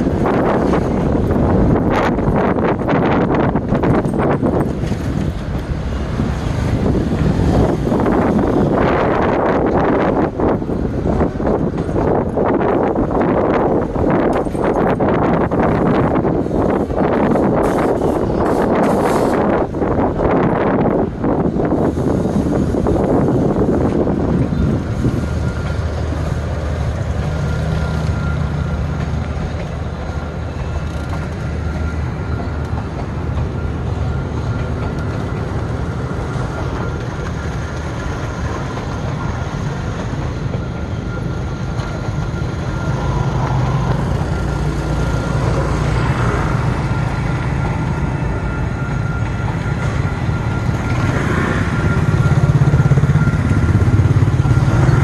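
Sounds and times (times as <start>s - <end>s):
train coaches rolling on track: 0.0s - 55.0s
motor scooters riding: 26.8s - 55.0s.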